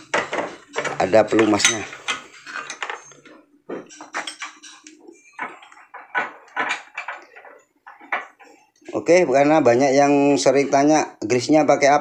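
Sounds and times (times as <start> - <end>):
metal tools clinking: 0.8 - 3.3, 3.9 - 8.3.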